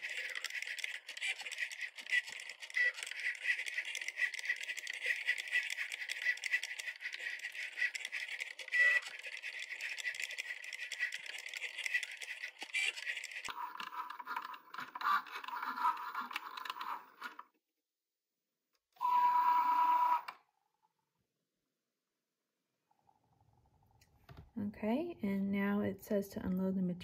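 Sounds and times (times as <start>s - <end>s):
cutting machine motors whirring: 0.0s - 17.4s.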